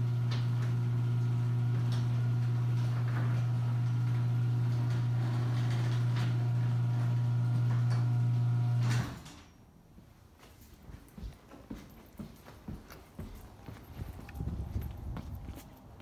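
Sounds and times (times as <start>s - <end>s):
garage door opener motor humming: 0.0s - 9.5s.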